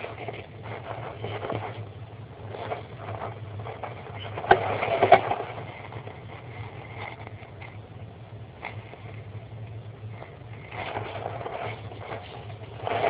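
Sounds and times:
steady low hum: 0:00.0 - 0:13.0
wood chips rustling and scraping: 0:02.4 - 0:07.8, 0:10.2 - 0:13.0.

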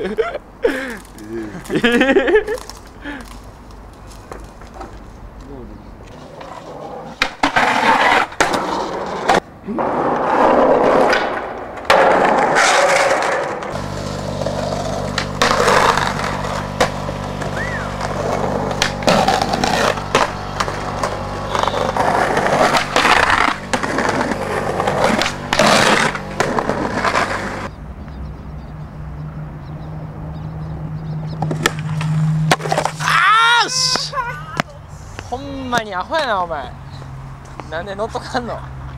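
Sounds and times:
skateboards rolling on pavement: 0:00.0 - 0:28.2, 0:30.8 - 0:38.9
skateboard pops and clacks: 0:07.2 - 0:13.8, 0:15.0 - 0:27.7, 0:31.4 - 0:33.0
low hum: 0:13.6 - 0:33.1.

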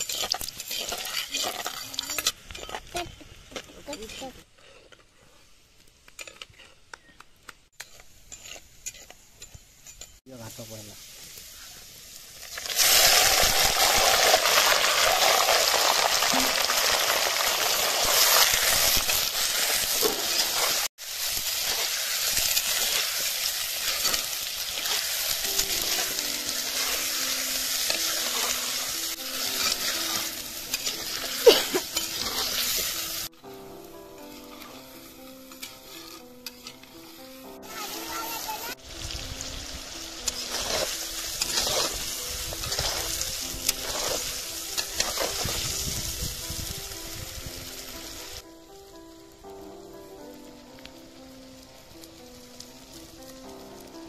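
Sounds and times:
meat sizzling in hot oil: 0:00.0 - 0:03.0, 0:07.8 - 0:48.5, 0:50.1 - 0:54.0
soft background music: 0:23.8 - 0:54.0.

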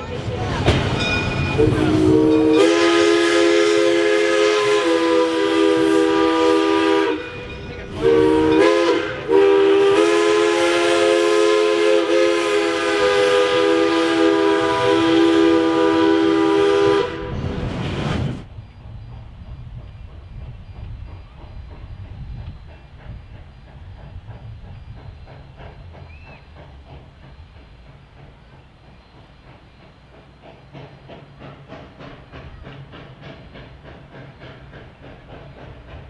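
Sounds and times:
steam whistle chord: 0:01.6 - 0:17.3.

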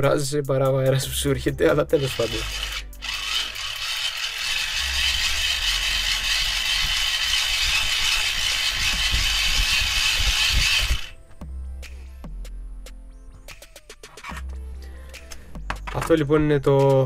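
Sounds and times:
hand-cranked charger whirring: 0:01.9 - 0:11.2.

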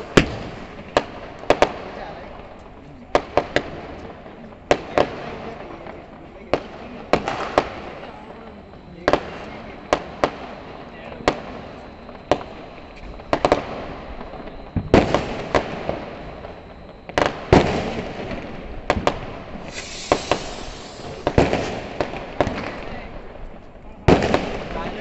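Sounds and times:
firecrackers banging: 0:00.0 - 0:25.0
hissing spray: 0:19.7 - 0:21.4.

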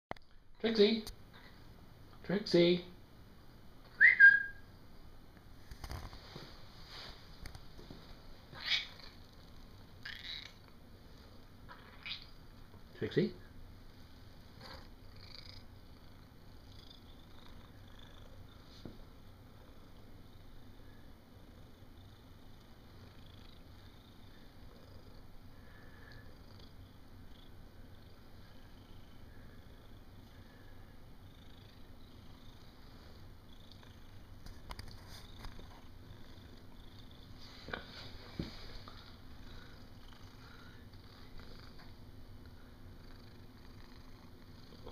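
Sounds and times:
cat purring: 0:13.8 - 0:44.9.

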